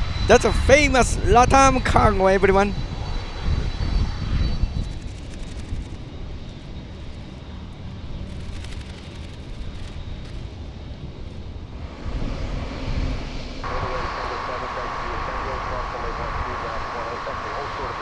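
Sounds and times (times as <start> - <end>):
jet engines rumbling: 0.0 - 18.0.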